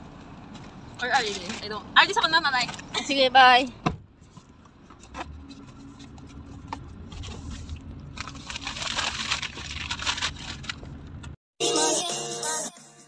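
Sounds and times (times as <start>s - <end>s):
car cabin rumble: 0.0s - 11.4s
cardboard box rustling: 5.0s - 11.0s
music: 11.6s - 13.0s.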